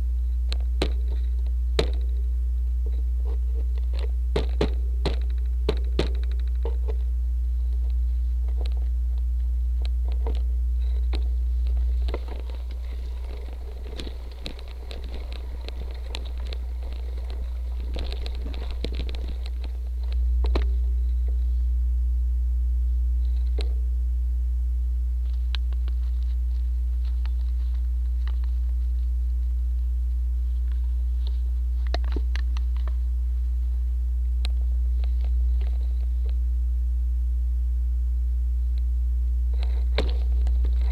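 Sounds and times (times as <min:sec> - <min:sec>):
gravel crackling: 0:00.0 - 0:21.6, 0:39.5 - 0:40.9
faint steady tone: 0:00.0 - 0:40.9
low electrical hum: 0:00.0 - 0:40.9
bike rattling over rocks: 0:00.6 - 0:02.2, 0:03.2 - 0:07.0, 0:10.1 - 0:20.9, 0:39.7 - 0:40.9.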